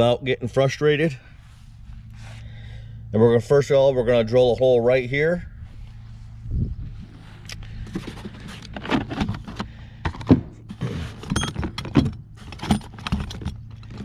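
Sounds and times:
tools and fittings clattering: 7.9s - 14.0s.

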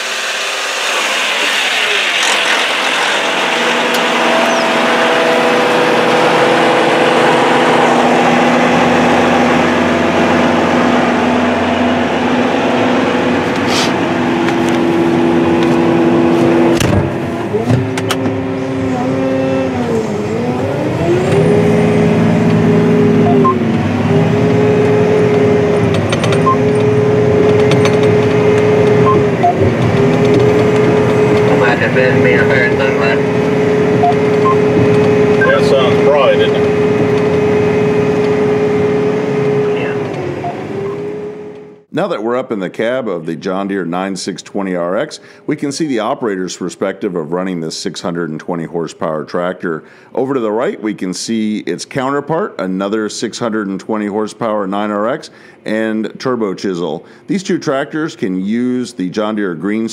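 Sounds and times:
diesel engine running: 0.0s - 41.9s, 54.8s - 56.0s.

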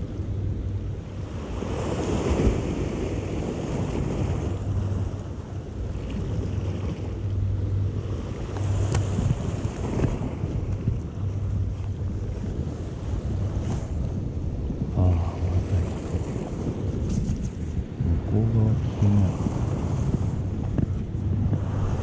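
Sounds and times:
sea waves against rocks: 0.0s - 22.0s
wind buffeting microphone: 0.0s - 22.0s.

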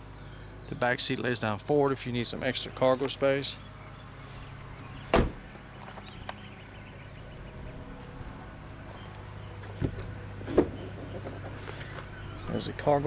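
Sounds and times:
car door slamming: 5.1s - 5.5s
soft thud: 5.2s - 5.4s.

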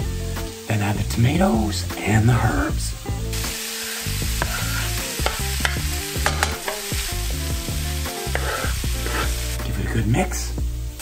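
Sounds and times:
food sizzling in a pan: 0.0s - 11.0s
utensil scraping a pan: 3.8s - 7.2s, 8.1s - 9.5s.

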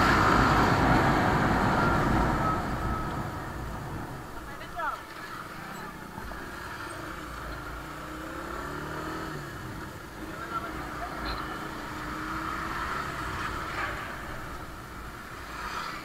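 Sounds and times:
road noise: 0.0s - 16.0s.

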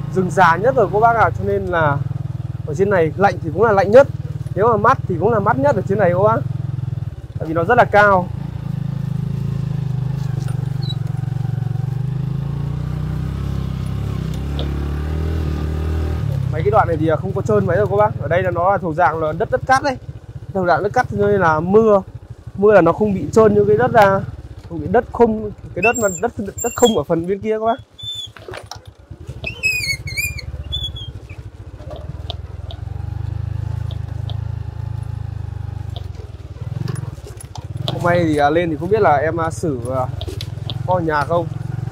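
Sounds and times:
motorcycle engine running: 0.0s - 41.9s
bird chirping: 10.8s - 11.0s, 25.8s - 27.0s, 27.7s - 28.4s, 29.4s - 31.4s.

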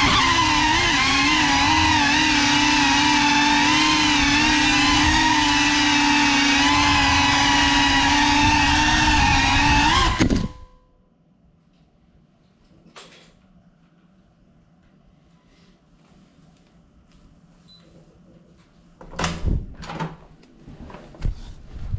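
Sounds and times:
drone motors whining: 0.0s - 10.7s.

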